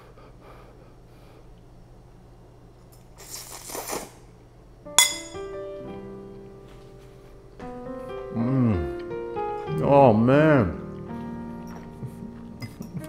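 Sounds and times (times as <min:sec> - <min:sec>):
spaghetti slurping: 0:03.1 - 0:04.3.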